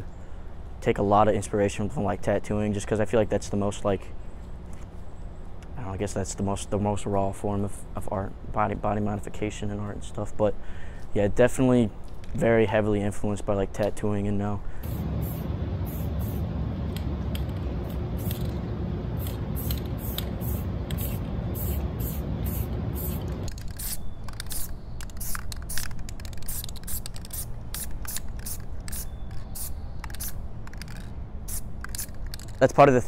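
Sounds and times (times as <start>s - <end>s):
spray paint can hissing: 14.8s - 18.6s, 19.2s - 32.6s.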